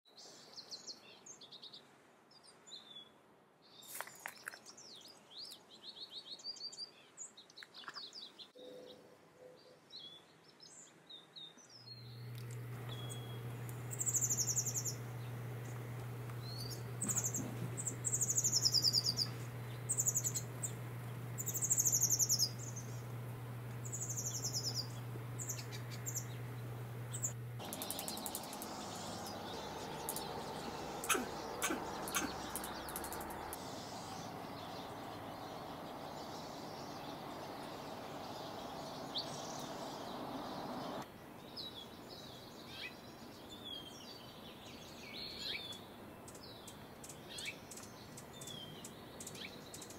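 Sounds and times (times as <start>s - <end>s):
high falling bird song: 0.1s - 49.9s
songbirds chirping: 0.1s - 49.9s
steady low hum: 11.9s - 41.1s.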